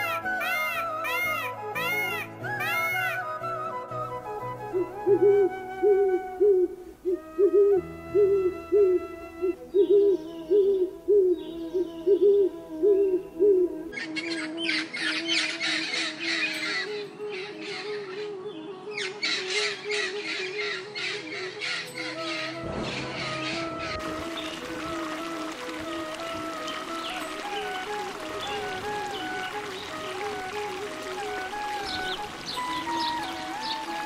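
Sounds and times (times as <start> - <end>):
owl hooting: 4.7 - 16.8.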